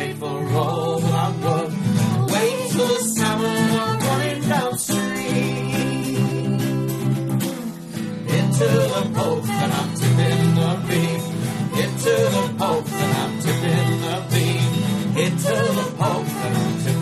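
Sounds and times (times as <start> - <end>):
strummed acoustic guitar: 0.0 - 17.0
fiddle playing: 8.7 - 17.0.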